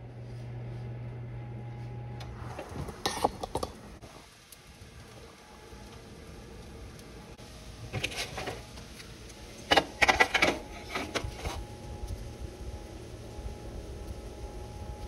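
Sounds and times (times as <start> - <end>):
baking sheet scraping rattle: 2.5 - 3.7, 7.9 - 8.7, 9.6 - 11.6.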